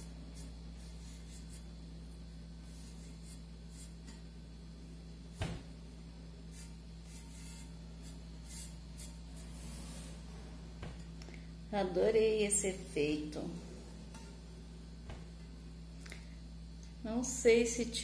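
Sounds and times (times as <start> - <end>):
scratchy rubbing strokes: 0.0 - 1.8, 2.6 - 4.2, 6.5 - 10.6
steady low hum: 0.0 - 18.0.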